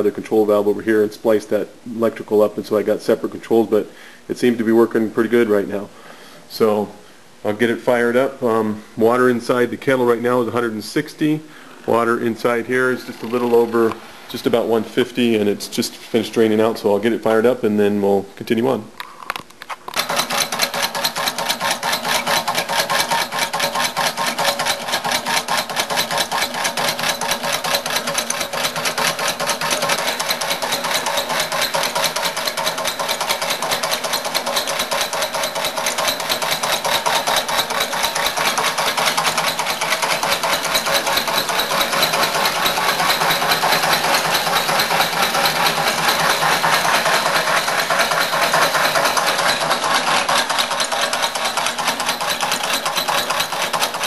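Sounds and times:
motor and blower fluttering: 19.9 - 54.0.

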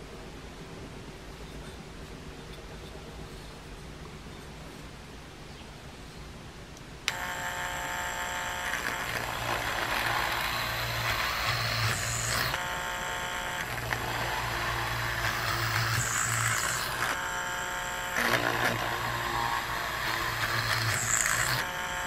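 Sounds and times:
drill bit clattering: 7.1 - 22.0
small electric drill whining: 7.1 - 22.0.

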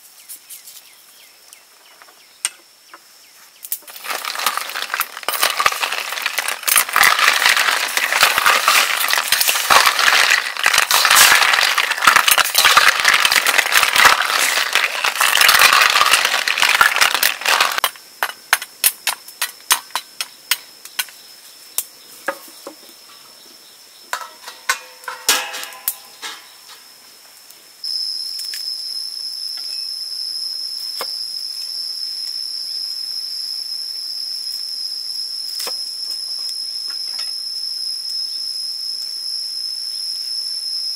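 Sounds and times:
wood fire popping and crackling: 3.7 - 21.1
loud bubbling boil: 3.9 - 17.8
high-pitched insect drone: 27.8 - 40.9.

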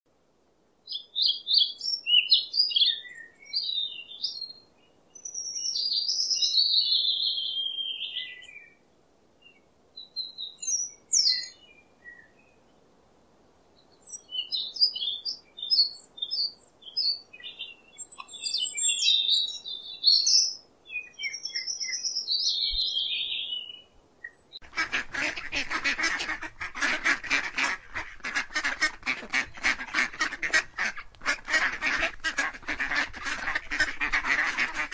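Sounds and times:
small birds chirping: 0.8 - 8.8, 9.4 - 12.9, 13.5 - 24.9
geese honking and cackling: 24.6 - 34.9.

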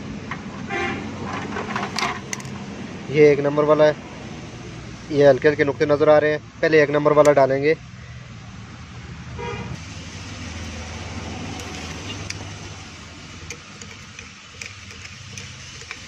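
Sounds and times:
traffic hum: 0.0 - 16.0
car horn toot: 0.7 - 1.1, 9.4 - 9.8.

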